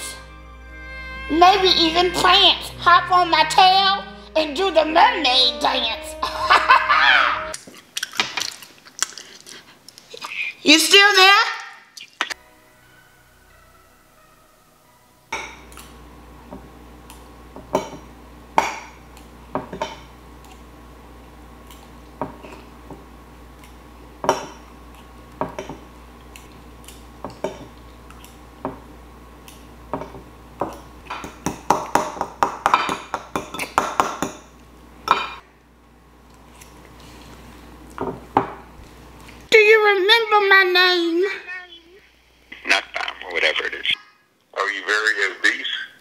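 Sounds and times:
steady low hum: 0.0 - 7.6, 14.8 - 40.3.

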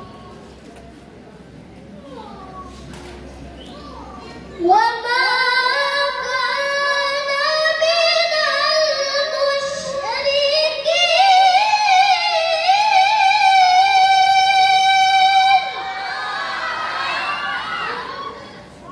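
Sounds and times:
girl chanting through microphone: 4.3 - 15.9.

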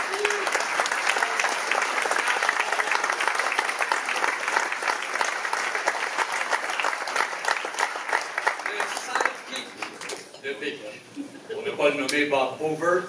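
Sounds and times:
audience applause: 0.0 - 10.3.

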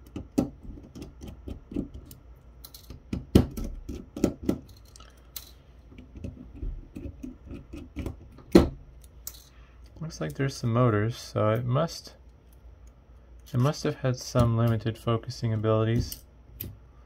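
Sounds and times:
knocks of parts handled: 0.0 - 9.5.

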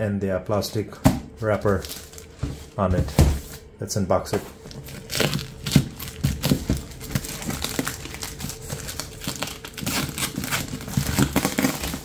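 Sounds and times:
plastic bag crinkling: 1.4 - 2.4, 4.6 - 12.0
scissors cutting plastic: 4.9 - 12.0.

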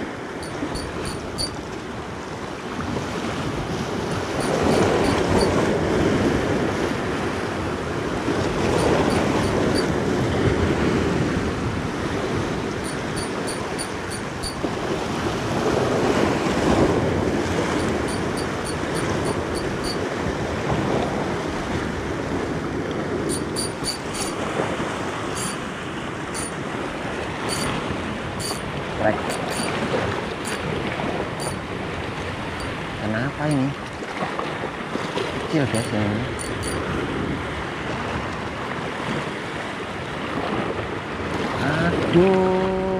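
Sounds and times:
surf washing over rocks: 0.0 - 42.9
fishing reel clicking: 0.4 - 1.6, 4.1 - 5.5, 8.8 - 9.9, 12.8 - 14.6, 17.8 - 20.0, 23.3 - 24.4, 25.3 - 25.6, 26.4 - 26.6, 27.5 - 27.8, 28.4 - 28.7, 29.3 - 29.8, 30.4 - 30.6, 31.4 - 31.6, 35.8 - 36.8.

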